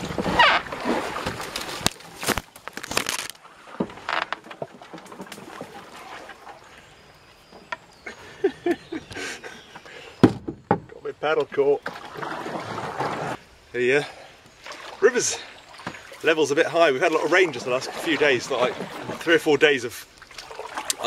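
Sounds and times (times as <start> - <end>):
paddle knocking in branches: 0.0 - 6.6, 10.2 - 13.4, 15.7 - 16.3
branches scraping on canoe: 0.0 - 8.0, 11.6 - 13.5, 14.4 - 21.0.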